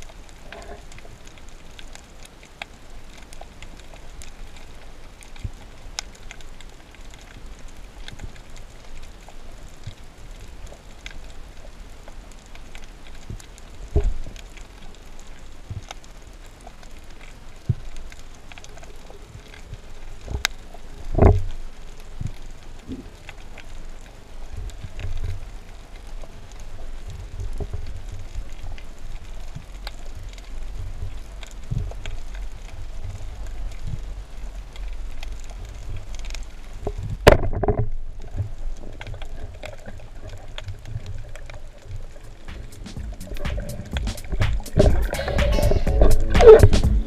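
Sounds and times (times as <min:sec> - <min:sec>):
fine underwater crackling: 0:00.0 - 0:47.0
low rumble: 0:42.4 - 0:47.0
dull low thumps: 0:42.5 - 0:47.0.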